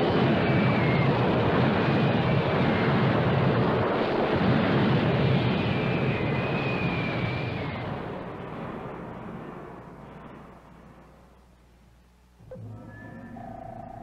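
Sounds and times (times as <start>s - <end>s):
high whine sliding downward: 12.4s - 14.0s.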